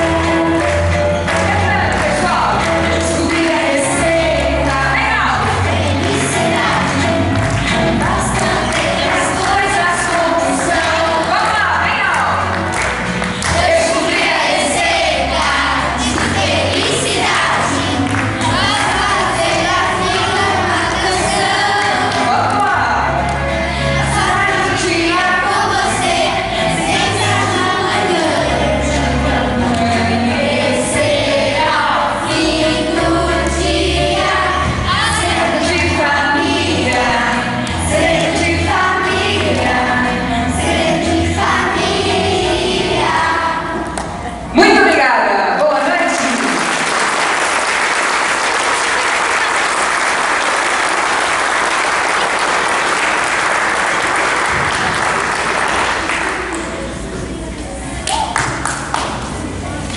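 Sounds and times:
audience applauding: 0.0 - 23.5, 46.1 - 57.0, 58.0 - 59.4
children singing together: 0.0 - 44.3
backing music with bass line: 0.0 - 44.8.

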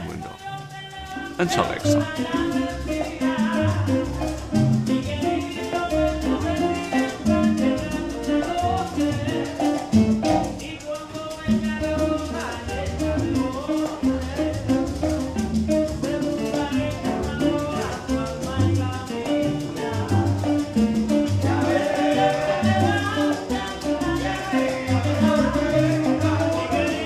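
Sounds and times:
conga drums: 0.0 - 27.0
maracas shaking: 0.0 - 27.0
person singing: 0.0 - 27.0
strummed acoustic guitar: 11.5 - 27.0.

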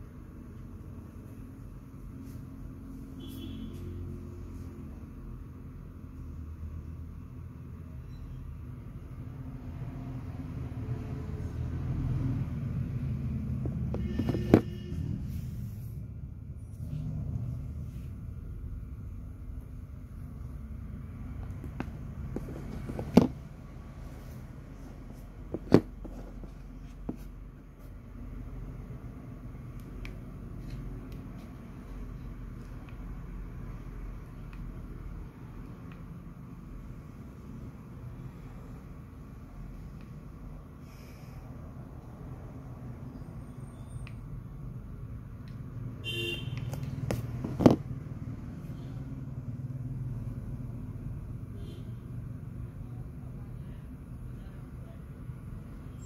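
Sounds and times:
road traffic rumble: 0.0 - 56.0
vehicle horn toot: 3.2 - 4.0, 13.9 - 15.4, 46.0 - 46.7.

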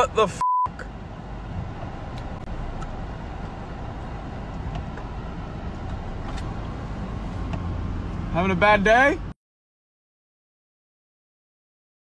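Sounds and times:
car engine and road noise: 0.0 - 9.4.

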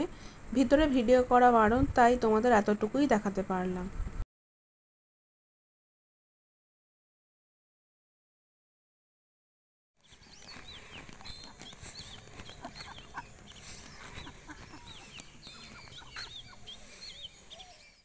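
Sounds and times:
birds chirping: 10.0 - 18.0.

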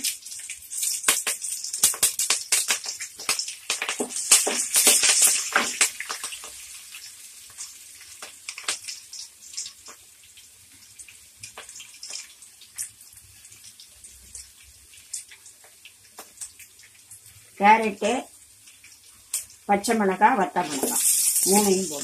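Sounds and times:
seeds popping and crackling: 0.0 - 6.5, 20.6 - 22.0
hot oil sizzling: 0.0 - 22.0.

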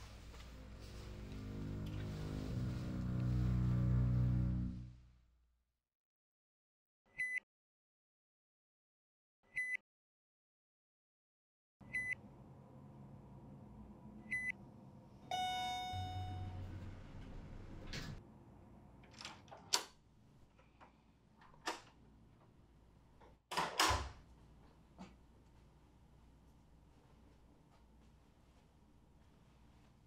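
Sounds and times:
elevator electronic beeps: 11.9 - 12.2, 15.3 - 17.0
elevator arrival chime: 15.3 - 17.2
elevator doors rumbling open: 15.3 - 18.2
door clicks and knocks: 23.5 - 24.2.

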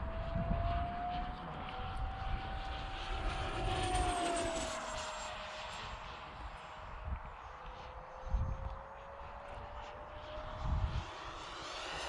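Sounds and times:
model jet fan whine: 0.0 - 12.0.

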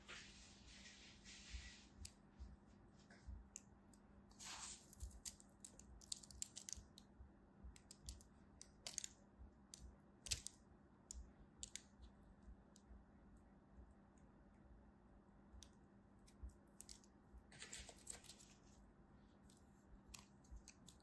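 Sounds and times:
sand hissing crumble: 4.4 - 4.8.

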